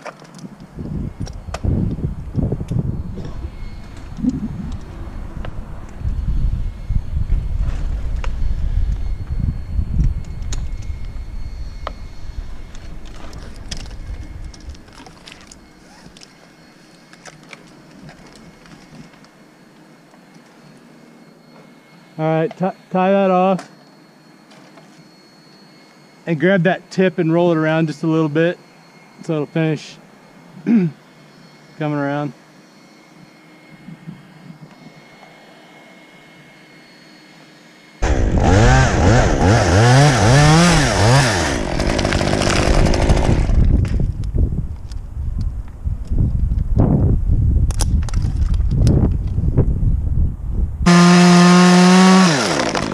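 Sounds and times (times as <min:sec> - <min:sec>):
low rumble: 0:00.8 - 0:15.0
chainsaw revving and cutting: 0:38.0 - 0:43.6, 0:50.9 - 0:52.9.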